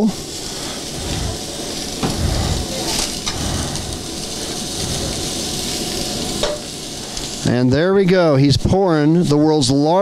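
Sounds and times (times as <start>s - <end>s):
oil sizzling on griddle: 0.0s - 10.0s.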